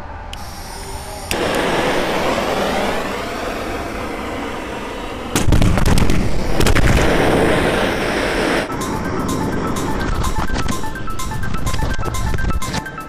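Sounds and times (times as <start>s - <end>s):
steady rushing noise: 0.0s - 12.8s
balloons bursting with bangs: 1.3s - 8.7s.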